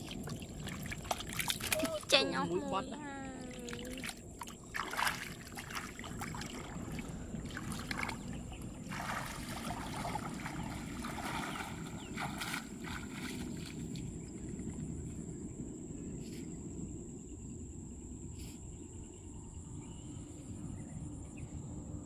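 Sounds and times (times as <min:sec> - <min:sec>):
water splashing and sloshing: 0:00.0 - 0:15.7
steady low rumble: 0:00.0 - 0:22.0.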